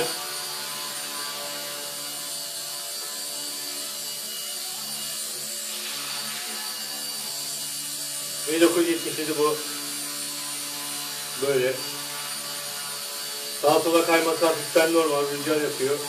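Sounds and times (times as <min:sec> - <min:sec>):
rc helicopter buzzing whine: 0:00.0 - 0:16.0.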